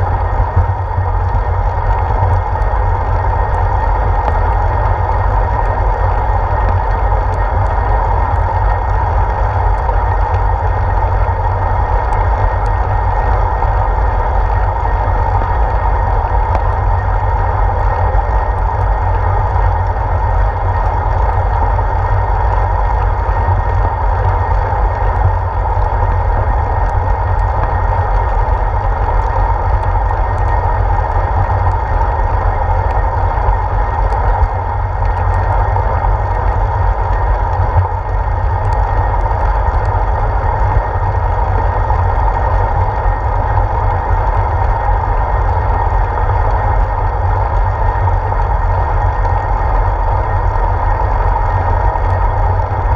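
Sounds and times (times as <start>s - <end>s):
road noise: 0.0s - 52.9s
wind rumble: 0.0s - 52.9s
faint ticks: 16.5s - 16.7s.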